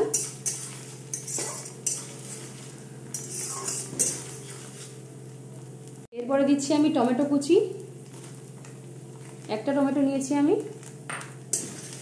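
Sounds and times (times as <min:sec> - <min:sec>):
metal spatula scraping a pan: 0:00.0 - 0:05.0, 0:11.5 - 0:12.0
food frying in oil: 0:00.0 - 0:12.0.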